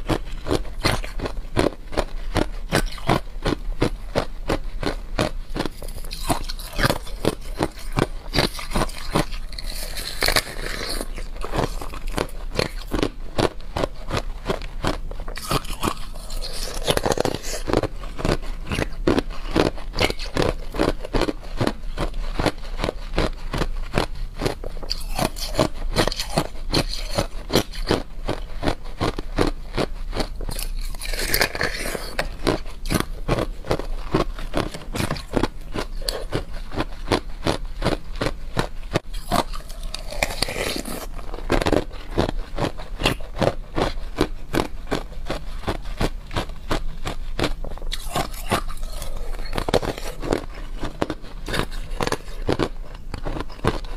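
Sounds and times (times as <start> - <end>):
ice sheets crunching and cracking: 5.6 - 13.1, 15.4 - 20.6, 30.5 - 33.1, 39.2 - 41.1.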